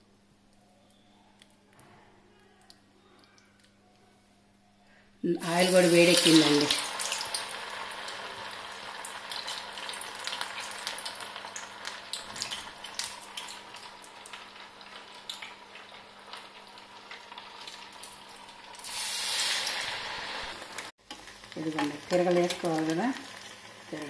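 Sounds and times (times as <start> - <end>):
food deep-frying in oil: 5.3 - 24.0.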